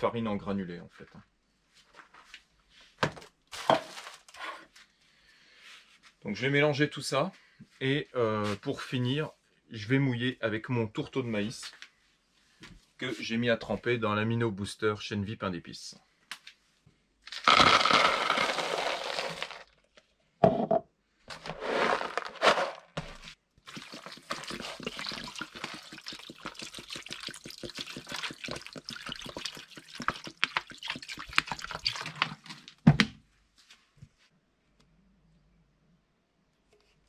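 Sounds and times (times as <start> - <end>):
dry meal pouring into bowl: 17.3 - 19.7, 21.4 - 22.9, 23.7 - 32.5.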